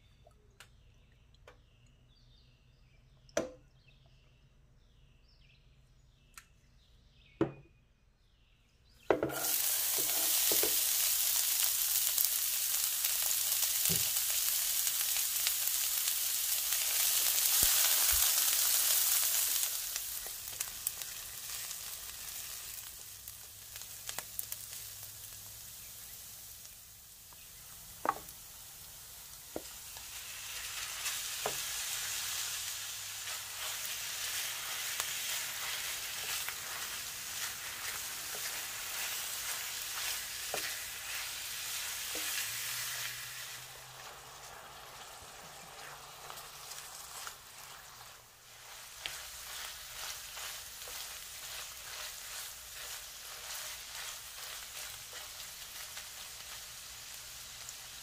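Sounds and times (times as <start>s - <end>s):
meat and onions sizzling in a pan: 9.1s - 58.0s
spatula stirring meat: 29.5s - 58.0s.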